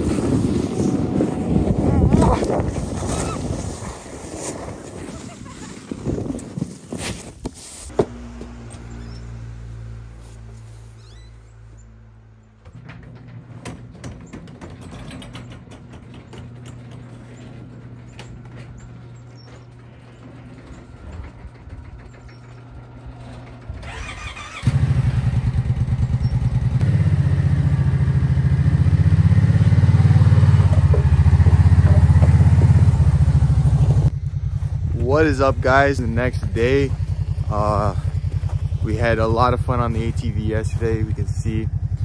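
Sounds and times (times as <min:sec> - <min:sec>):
atv engine running: 0:07.9 - 0:13.0, 0:17.6 - 0:42.0
garage door clicking and rattling: 0:12.5 - 0:23.9.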